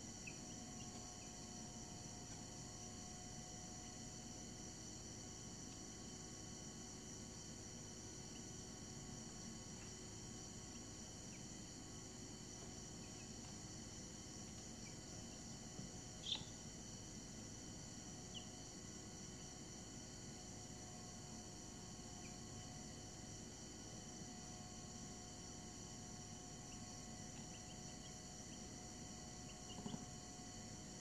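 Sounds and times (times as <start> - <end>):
faint high-pitched hum: 0.0 - 31.0
chicks peeping: 16.2 - 16.6, 29.4 - 30.0.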